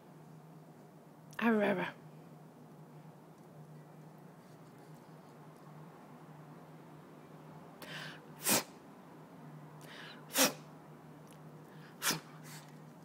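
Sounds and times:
puppy sneezing: 8.4 - 8.8, 10.3 - 10.7, 12.0 - 12.7.

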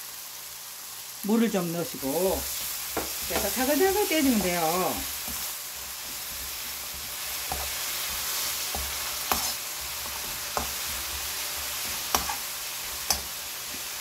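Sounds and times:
food sizzling in a frying pan: 0.0 - 14.0
spatula tapping a pan: 2.9 - 3.6, 4.2 - 12.4, 13.0 - 13.8.

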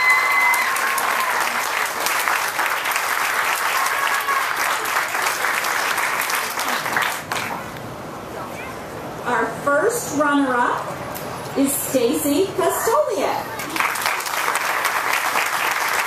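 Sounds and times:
crowd applauding: 0.0 - 7.7, 13.5 - 16.0.

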